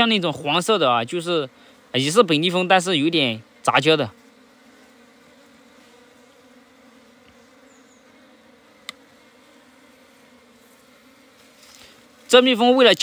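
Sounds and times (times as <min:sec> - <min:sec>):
honeybees humming: 0:00.0 - 0:13.0
sharp click: 0:08.8 - 0:09.0.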